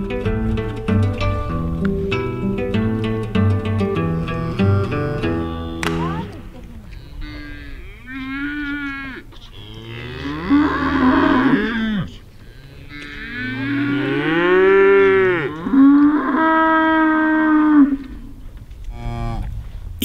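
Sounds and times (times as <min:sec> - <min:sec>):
cattle mooing: 0:03.9 - 0:18.3.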